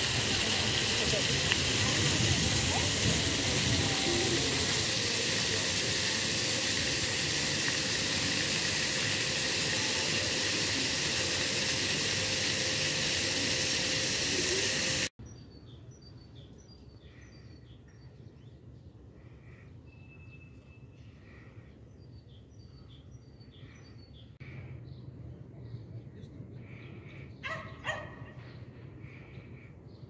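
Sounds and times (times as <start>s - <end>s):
fountain splashing hiss: 0.0s - 15.1s
bird chirps: 19.7s - 21.2s.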